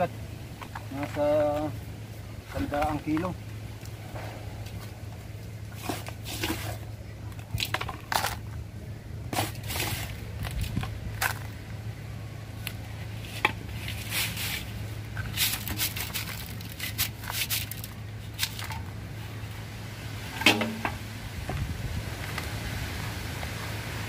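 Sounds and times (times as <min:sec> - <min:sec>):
potting mix pouring and scraping: 0:05.7 - 0:08.6, 0:09.3 - 0:11.5, 0:13.1 - 0:19.4
loud clunk: 0:20.4 - 0:21.0.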